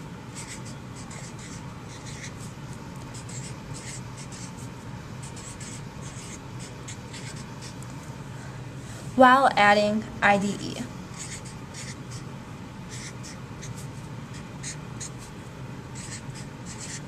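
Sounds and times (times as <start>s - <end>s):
marker scratching on poster board: 0.3s - 7.8s, 11.1s - 12.3s, 12.9s - 17.0s.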